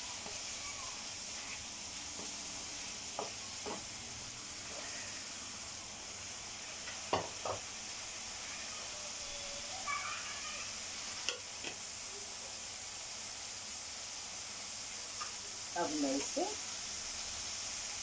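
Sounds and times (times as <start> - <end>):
food sizzling in oil: 0.0 - 18.0
spatula knocking against pan: 7.1 - 7.6.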